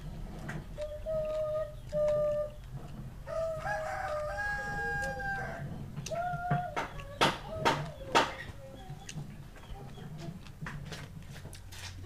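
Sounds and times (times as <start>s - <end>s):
rooster crowing: 3.2s - 5.7s.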